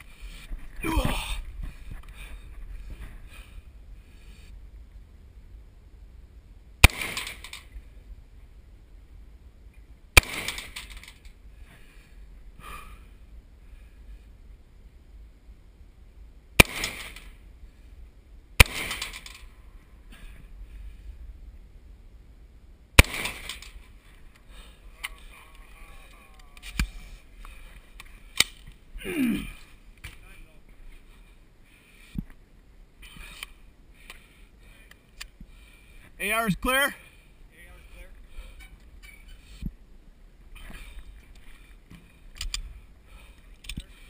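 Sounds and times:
rifle shots with echo: 6.8s - 7.7s, 10.2s - 11.0s, 16.6s - 17.4s, 18.6s - 19.4s, 23.0s - 23.8s
sharp crack with ring: 6.8s - 7.8s, 10.2s - 11.3s, 16.6s - 17.4s, 18.6s - 19.5s, 23.0s - 23.9s.

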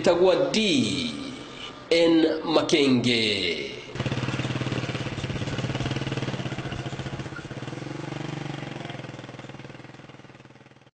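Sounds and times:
small engine puttering: 3.9s - 10.9s.

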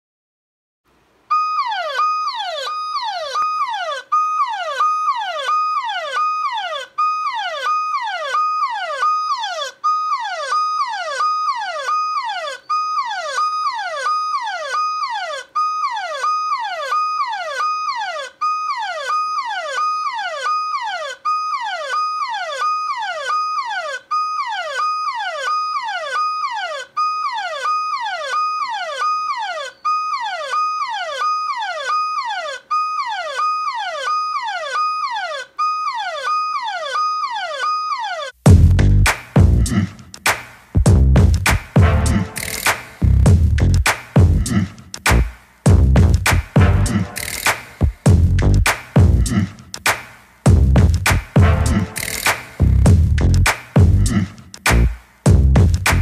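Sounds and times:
phone alarm siren whooping: 1.3s - 38.4s, 42.1s - 43.2s, 46.8s - 47.8s, 51.7s - 52.4s.

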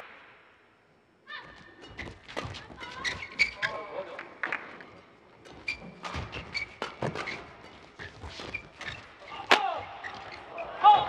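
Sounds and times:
shoes squeaking on court: 1.4s - 4.1s, 4.8s - 10.8s.

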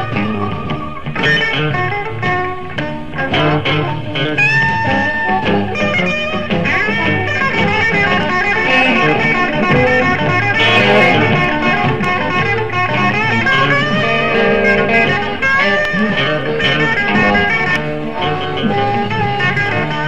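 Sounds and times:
bass guitar: 0.0s - 20.0s
drums: 0.0s - 20.0s
electric guitar bending notes: 0.0s - 20.0s.

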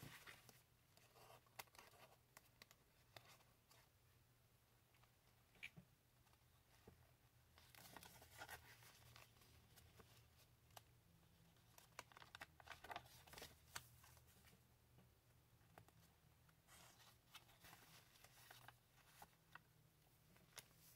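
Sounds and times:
paper pages turning: 7.6s - 10.8s, 11.6s - 14.5s, 16.7s - 19.6s.

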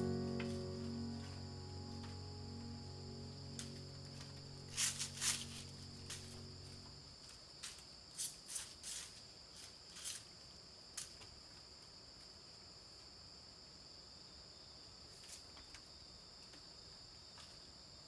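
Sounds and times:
high-pitched insect drone: 0.0s - 7.0s
soft background music: 0.0s - 7.2s.

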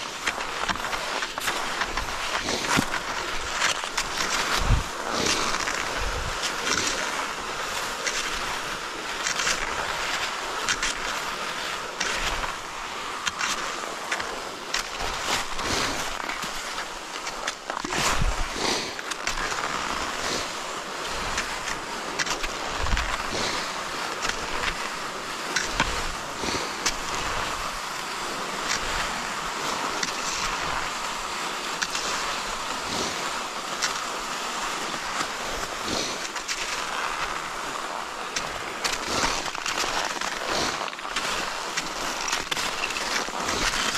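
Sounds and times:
ski poles clicking: 0.0s - 43.9s
skis scraping over snow: 0.0s - 43.9s
wind on microphone: 4.3s - 6.6s.

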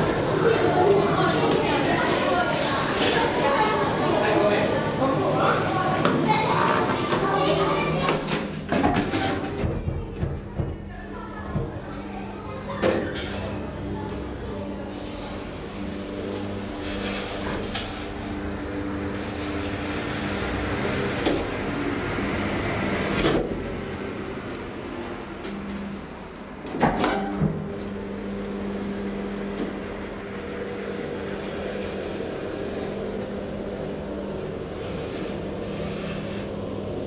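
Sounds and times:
elevator humming: 0.0s - 37.0s.

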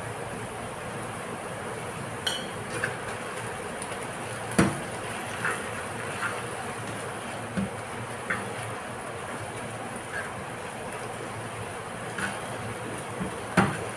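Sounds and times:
oil sizzling in frying pan: 0.1s - 13.9s
spatula scraping and tapping pan: 4.6s - 8.7s, 12.1s - 13.9s.

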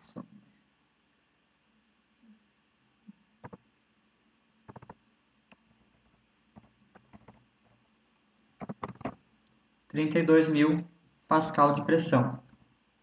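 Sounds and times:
keyboard key clicks: 4.7s - 5.0s, 8.6s - 9.2s.

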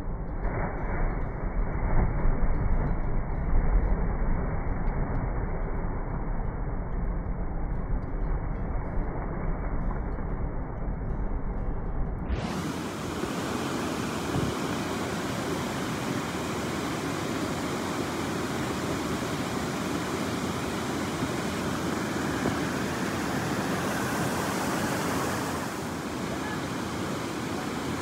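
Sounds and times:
muffled water sound: 0.0s - 28.0s
creek water rushing over rocks: 12.4s - 28.0s.

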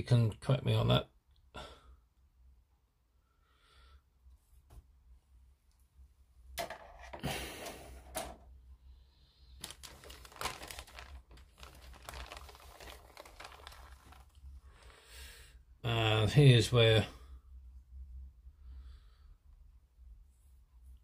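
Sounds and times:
plastic bag crinkling: 9.5s - 15.0s.

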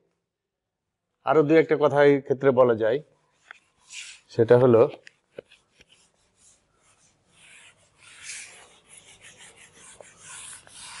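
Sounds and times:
eraser rubbing whiteboard: 3.3s - 4.3s, 5.4s - 11.0s.

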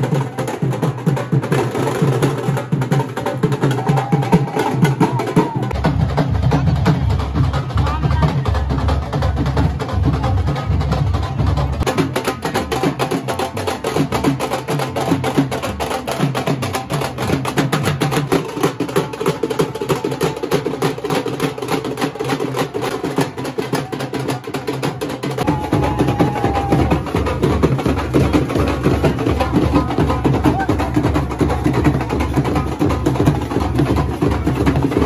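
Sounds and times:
dhol drums beaten fast: 0.0s - 35.0s.

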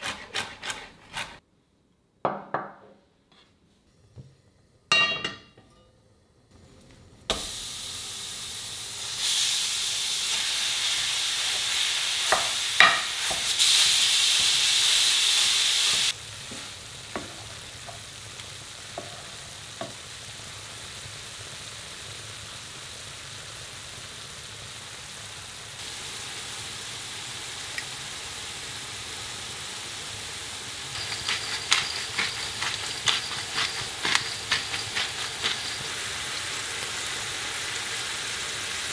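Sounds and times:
food sizzling in pan: 7.3s - 38.9s.

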